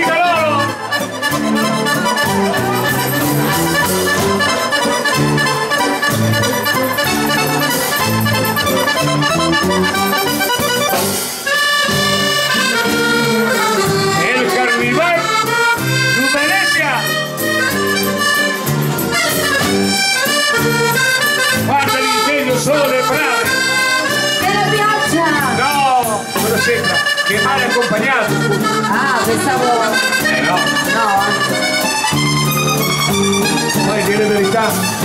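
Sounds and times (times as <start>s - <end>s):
piano accordion playing: 0.0s - 35.0s.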